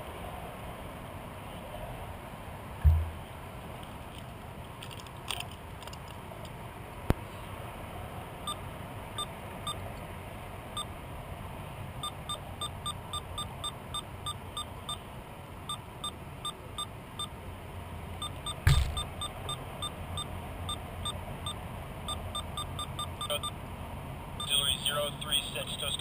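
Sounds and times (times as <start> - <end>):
sharp click: 18.7 - 19.0
short beeps: 22.1 - 23.5, 24.4 - 24.8.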